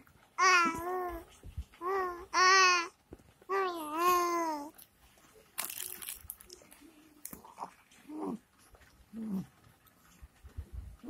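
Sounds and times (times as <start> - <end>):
rustling and crinkling: 0.0 - 11.0
baby cooing: 0.4 - 4.8.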